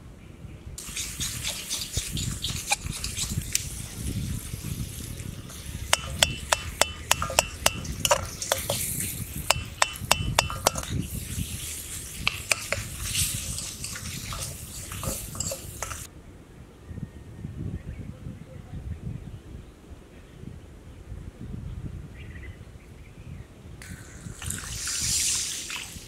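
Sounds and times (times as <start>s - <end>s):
frying sizzle: 0.8s - 16.1s
metal utensil clinking on pan: 5.9s - 11.1s, 12.2s - 16.1s.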